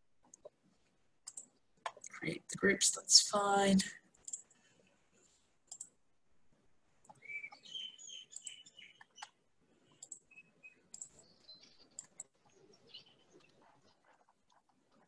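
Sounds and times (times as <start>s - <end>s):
computer mouse clicks: 0.2s - 0.6s, 1.2s - 2.2s, 4.2s - 4.6s, 5.6s - 6.0s, 8.3s - 15.0s
faint high chirps: 7.1s - 14.0s.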